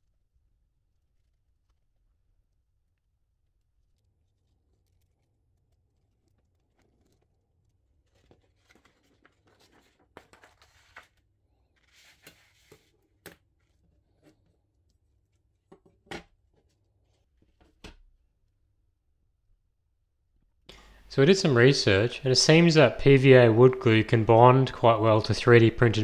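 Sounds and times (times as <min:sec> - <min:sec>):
wood veneer sheet rustling: 0:04.2 - 0:13.0.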